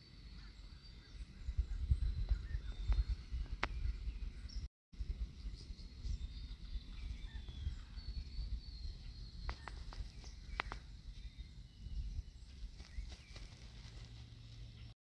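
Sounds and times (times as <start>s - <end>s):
faint bird chirps: 0.0s - 14.9s
wind rumbling on microphone: 0.0s - 14.9s.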